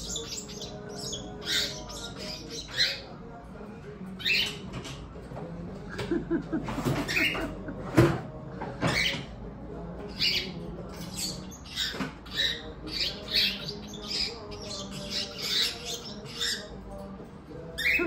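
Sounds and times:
cockatiel chirping: 0.0s - 3.1s, 10.1s - 16.7s.

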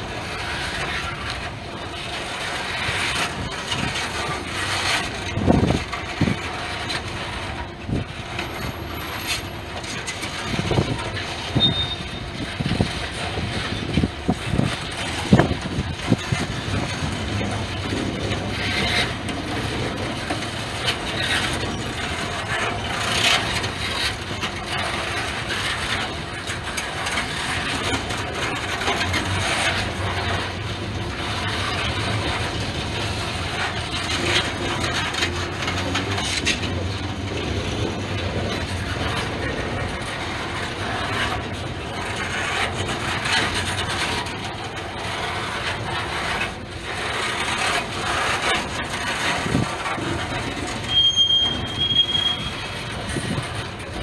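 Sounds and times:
freight train rumbling past: 0.0s - 54.0s
train wheels clanking: 0.0s - 54.0s.

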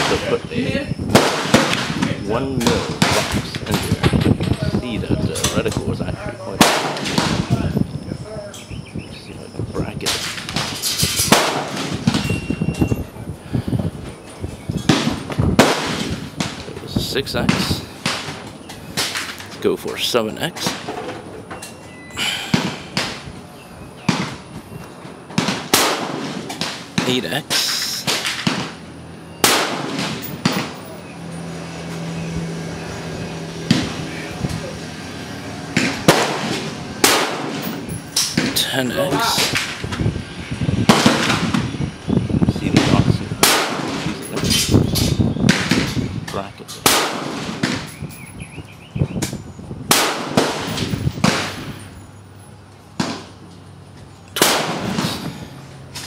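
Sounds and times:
gunshots: 0.0s - 0.5s, 1.1s - 4.0s, 6.6s - 7.7s, 10.0s - 12.4s, 14.8s - 19.5s, 22.4s - 23.2s, 24.0s - 24.5s, 25.3s - 31.0s, 35.7s - 39.9s, 40.8s - 41.7s, 42.6s - 46.0s, 46.8s - 48.0s, 49.9s - 51.8s, 54.4s - 55.4s
rifle shots echoing: 1.1s - 3.4s, 6.6s - 7.6s, 10.1s - 12.4s, 14.9s - 16.7s, 25.3s - 30.9s, 35.7s - 39.8s, 40.9s - 41.6s, 42.7s - 44.6s, 46.8s - 48.0s, 49.9s - 51.7s, 54.4s - 55.2s.

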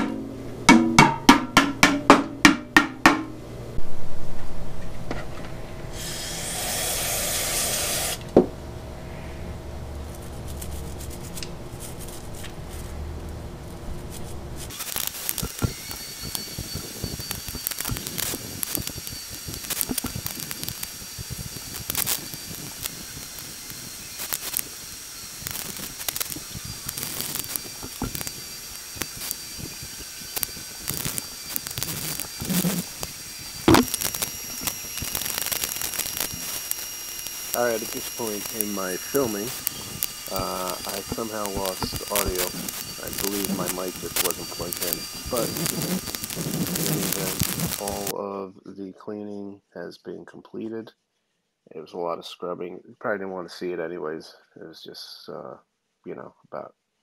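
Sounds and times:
aerosol spray can hissing: 5.9s - 8.3s, 14.8s - 48.1s.

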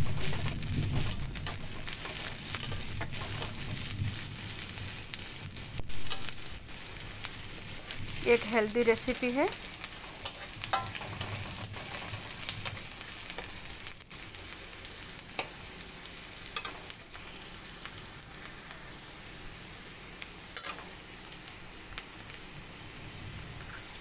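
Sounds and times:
vegetables sizzling in hot oil: 0.0s - 24.0s
spatula scraping and tapping pan: 0.1s - 3.8s, 6.0s - 6.4s, 9.5s - 13.5s, 16.5s - 17.3s, 20.6s - 20.9s.

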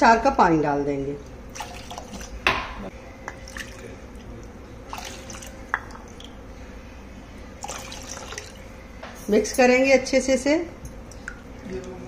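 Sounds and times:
water pouring: 1.5s - 2.4s, 4.9s - 6.4s, 7.6s - 8.6s.

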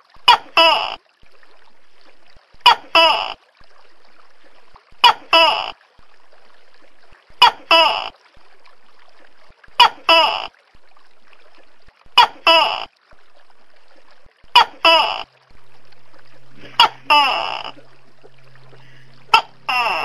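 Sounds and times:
background hiss: 13.7s - 20.0s.

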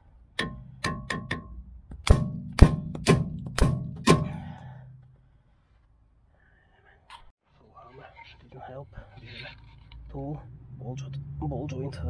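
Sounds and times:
hammer striking metal: 0.3s - 5.0s.

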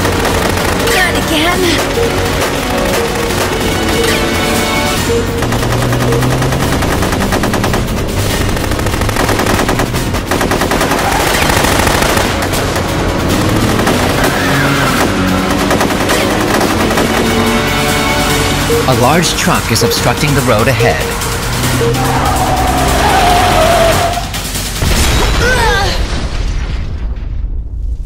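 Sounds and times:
rapid automatic gunfire: 0.0s - 21.9s
dramatic action music: 0.0s - 28.0s.

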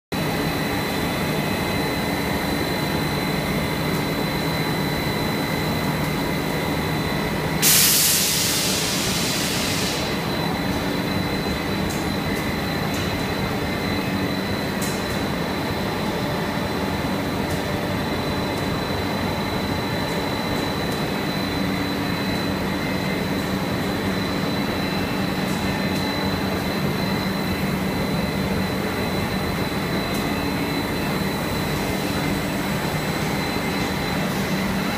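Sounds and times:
factory drone of motors: 0.2s - 34.9s
loud hiss: 7.6s - 10.2s.

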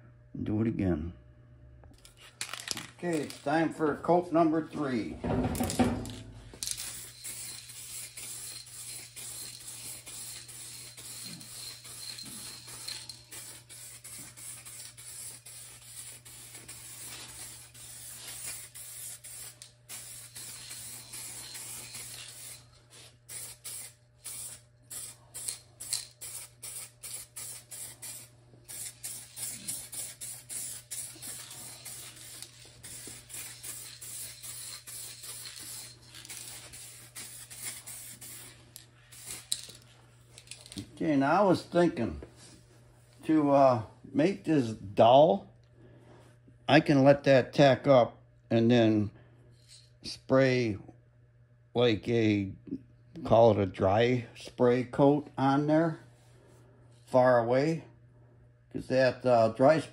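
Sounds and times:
spray can hissing: 6.6s - 39.8s.

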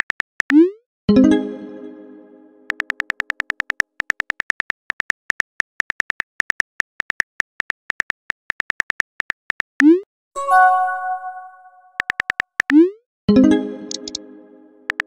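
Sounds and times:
phone keyboard typing clicks: 2.7s - 9.8s, 12.0s - 12.8s, 13.9s - 14.2s.

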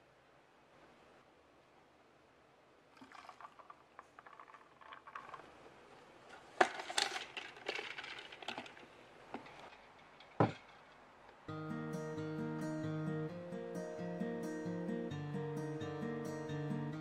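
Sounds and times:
plastic lid rattling: 3.0s - 5.5s, 6.6s - 8.8s.

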